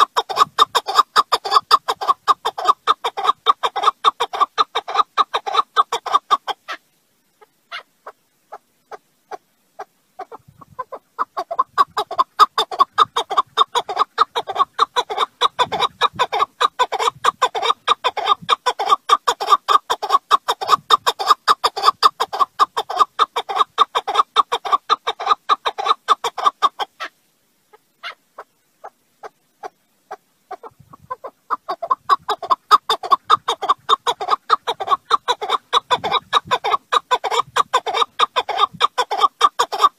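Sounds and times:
partridge calling: 0.0 - 6.8, 7.4 - 27.1, 29.2 - 39.9.

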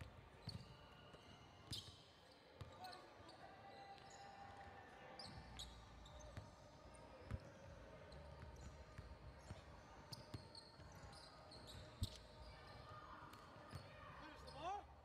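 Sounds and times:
sneaker squeaks: 0.4 - 4.2, 5.2 - 6.4, 9.4 - 12.8, 13.7 - 14.9.

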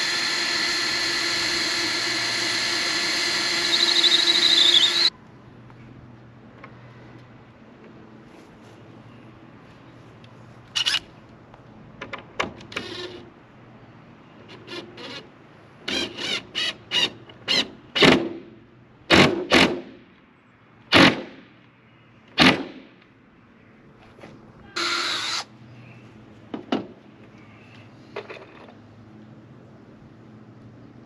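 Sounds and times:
cordless drill driving screws: 0.0 - 5.1, 24.8 - 25.5.

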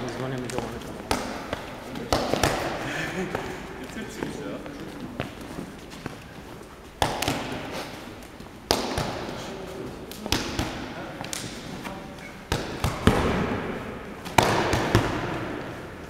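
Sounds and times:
arms slapping and striking: 0.0 - 3.5, 6.9 - 16.0.

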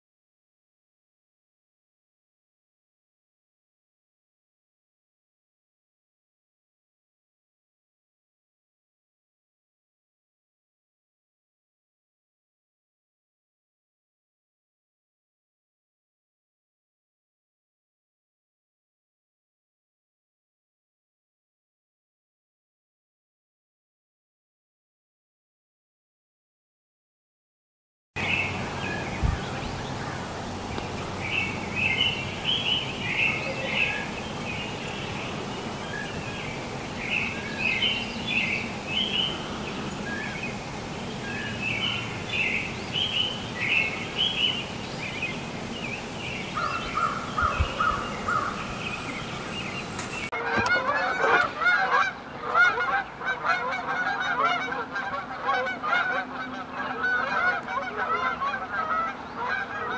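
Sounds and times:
geese honking: 28.2 - 44.8, 46.5 - 59.9
small birds chirping: 28.2 - 50.3.

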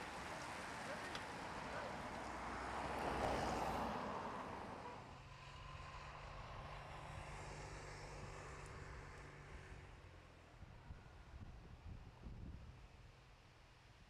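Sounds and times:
car passing close by: 0.0 - 10.1
low drone of car engines: 0.0 - 14.0.

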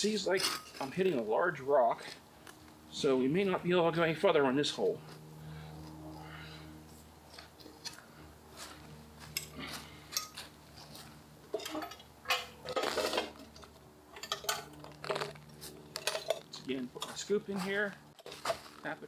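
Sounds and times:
metal auger scraping against stone: 0.2 - 1.2, 10.2 - 17.3.

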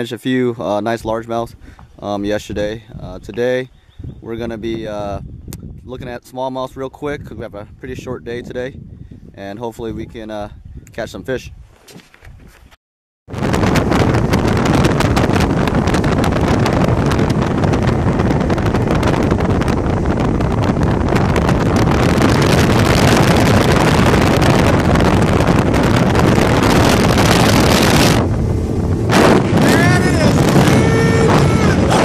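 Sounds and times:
wind rushing over microphone: 0.9 - 11.7, 13.3 - 32.0
boat motor and hull noise: 13.4 - 32.0.

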